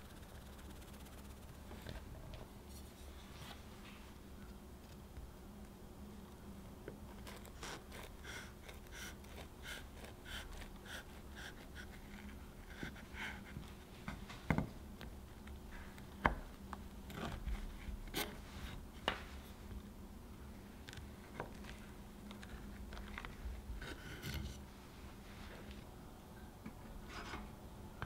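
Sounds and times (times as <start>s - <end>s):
knife sawing through crisp biscuit: 7.2s - 13.4s.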